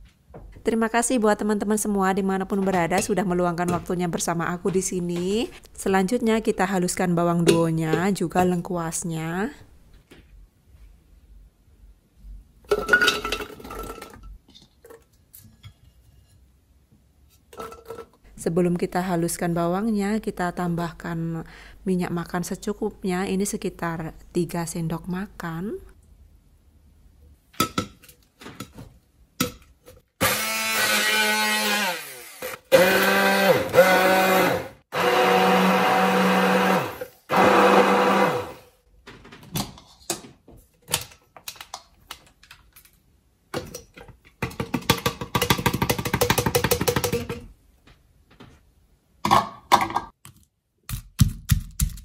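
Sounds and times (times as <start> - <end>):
stick blender motor: 30.2 - 38.6.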